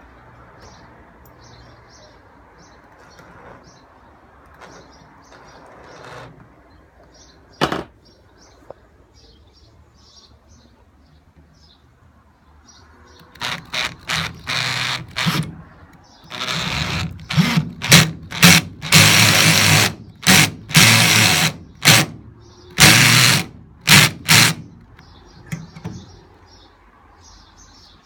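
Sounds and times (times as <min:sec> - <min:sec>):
cordless drill motor bursts: 0:13.4 - 0:15.5, 0:16.3 - 0:22.2, 0:22.8 - 0:24.7.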